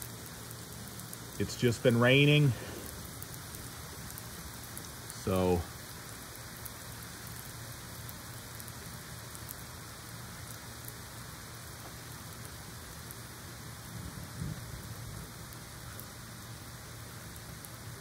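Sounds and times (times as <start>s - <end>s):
rain falling: 0.0s - 18.0s
distant thunder rumble: 13.9s - 15.4s.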